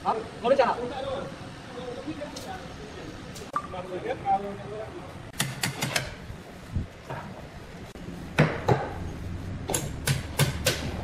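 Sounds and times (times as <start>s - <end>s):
sharp knocks: 8.4s - 9.0s.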